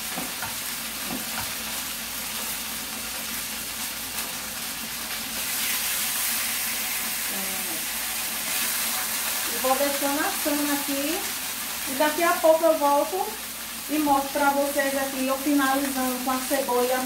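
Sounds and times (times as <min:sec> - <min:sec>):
beef sizzling in a pan: 0:00.0 - 0:17.0.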